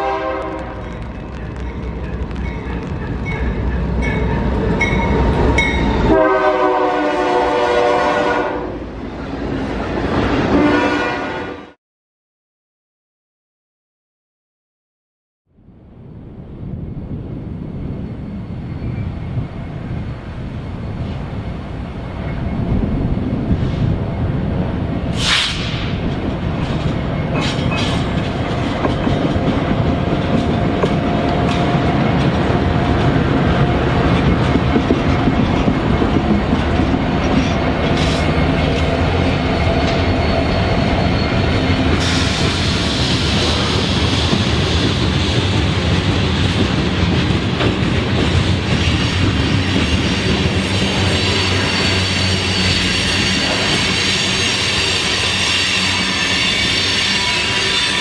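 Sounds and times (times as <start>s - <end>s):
diesel locomotive rumble: 16.6s - 58.0s
hiss of wheels on rail: 25.1s - 26.2s, 41.9s - 45.6s
train wheel clatter: 25.1s - 58.0s.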